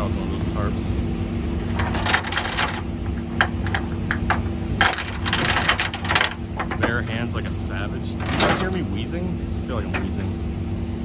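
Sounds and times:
low engine hum: 0.0s - 11.0s
steel chain clinking and rattling: 1.7s - 8.8s.

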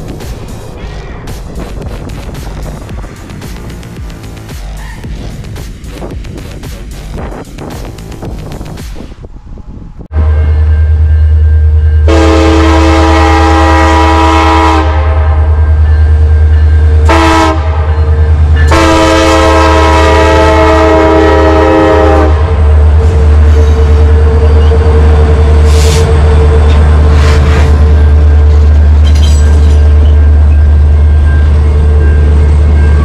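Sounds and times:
diesel engines rumbling: 0.0s - 10.1s, 12.7s - 33.0s
train cars rumbling on rails: 0.0s - 33.0s
locomotive horn blasts: 10.1s - 11.2s, 12.0s - 23.5s.

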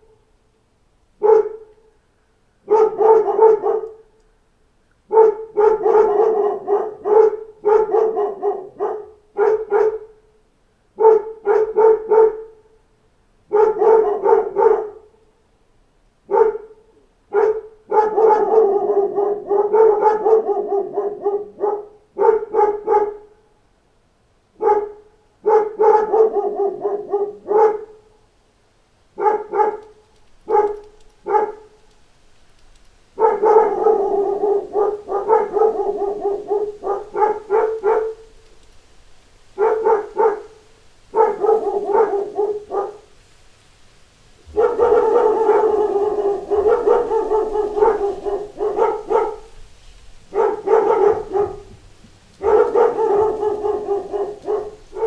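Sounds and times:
dogs barking: 1.2s - 1.9s, 2.6s - 4.1s, 5.1s - 10.2s, 11.0s - 12.6s, 13.5s - 15.2s, 16.3s - 23.3s, 24.6s - 28.1s, 29.2s - 31.8s, 33.1s - 38.4s, 39.4s - 43.2s, 44.4s - 55.0s.

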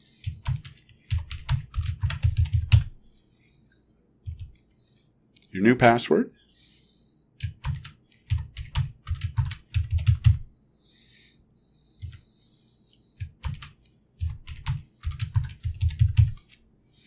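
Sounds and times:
keyboard typing: 0.2s - 3.0s, 4.3s - 4.6s, 7.4s - 10.5s, 12.0s - 12.2s, 13.2s - 16.5s.

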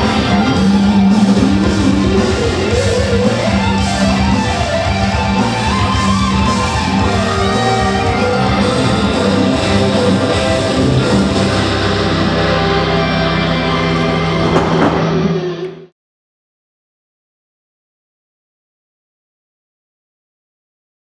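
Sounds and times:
rock music with electric guitar: 0.0s - 15.9s.

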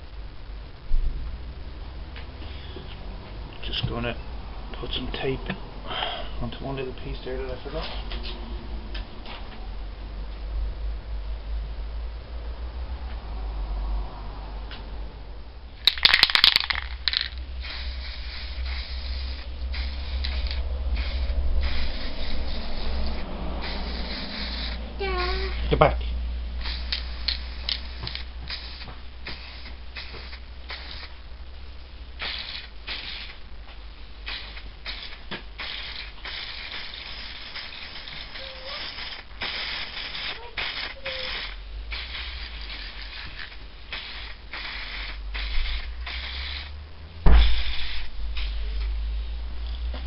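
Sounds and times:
aerosol can spraying: 15.8s - 25.6s, 26.6s - 31.2s, 32.2s - 33.4s, 34.3s - 49.0s.

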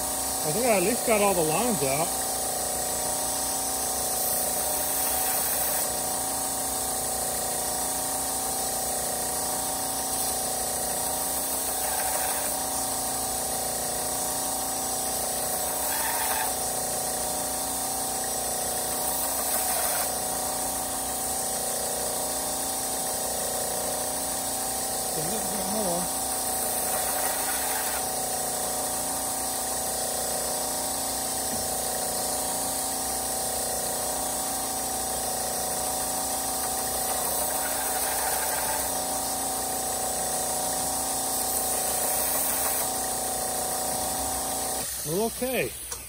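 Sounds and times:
belt grinder whirring: 0.0s - 46.0s
knife blade grinding on belt: 11.6s - 12.6s, 15.7s - 16.6s, 19.4s - 20.1s, 26.8s - 28.1s, 37.4s - 38.9s.

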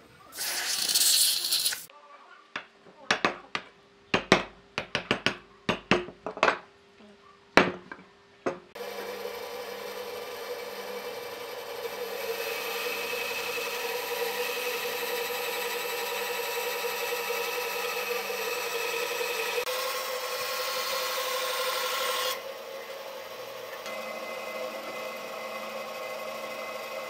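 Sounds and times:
band saw cutting wood: 8.8s - 27.0s.

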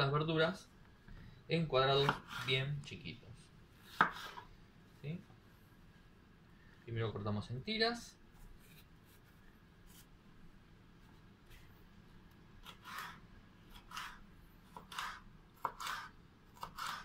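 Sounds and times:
knife slicing on wooden board: 3.8s - 4.5s, 12.6s - 17.0s.

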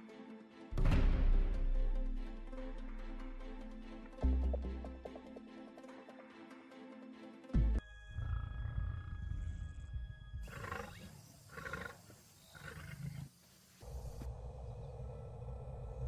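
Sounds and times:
low rumbling: 13.8s - 16.0s.

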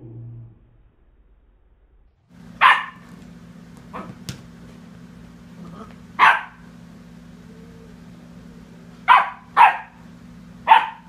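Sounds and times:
puppy barking: 2.5s - 3.2s, 3.9s - 4.3s, 5.6s - 6.7s, 9.0s - 10.0s, 10.6s - 11.0s.

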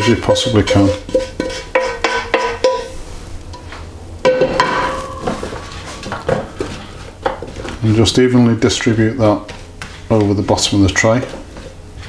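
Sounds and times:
utensil scraping metal pan: 0.0s - 3.0s.

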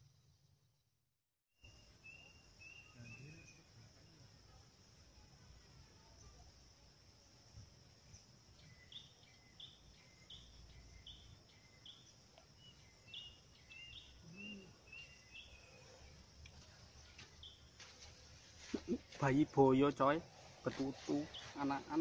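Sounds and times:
high insect drone: 1.6s - 22.0s
bird calls: 8.6s - 22.0s.

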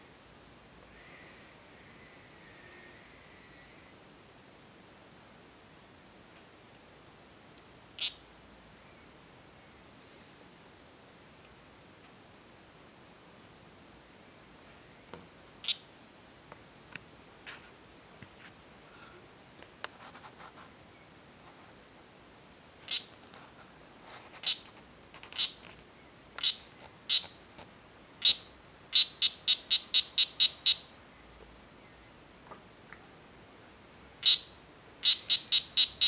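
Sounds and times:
frog calling with high chirps: 8.0s - 8.2s, 15.6s - 15.9s, 22.8s - 23.2s, 24.4s - 24.6s, 25.3s - 25.6s, 26.4s - 27.4s, 28.2s - 31.0s, 34.2s - 36.0s.

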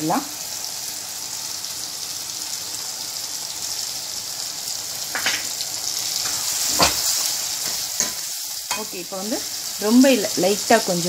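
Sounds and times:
masala sizzling in oil: 0.0s - 11.0s
spoon knocking against pan: 5.1s - 5.5s.

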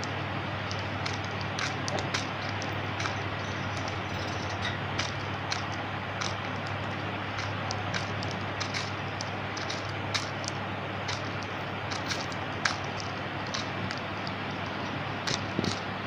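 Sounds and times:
bird cracking seed clicks: 0.6s - 15.8s.

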